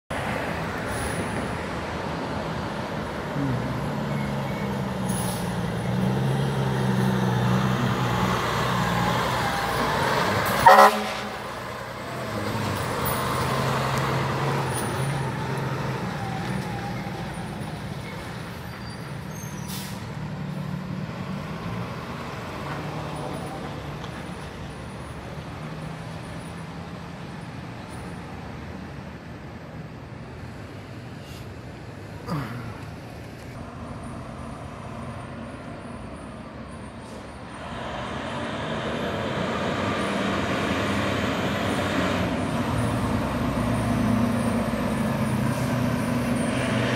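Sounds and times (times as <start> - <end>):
fire truck engines driving past: 0.1 - 46.9
horn toot: 10.4 - 11.6.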